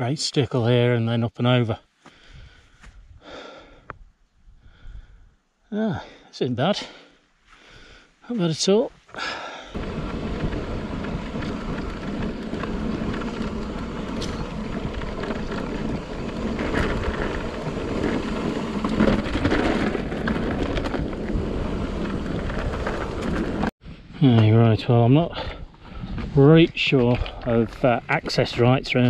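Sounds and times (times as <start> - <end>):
bike tyres rumbling and rattling: 9.2 - 29.0
wind on microphone: 9.8 - 24.2.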